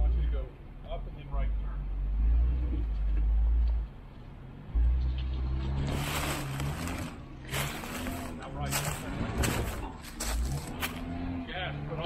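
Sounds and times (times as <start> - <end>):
engine running at low revs: 0.9 - 12.0
short bursts of rough noise: 5.8 - 11.0.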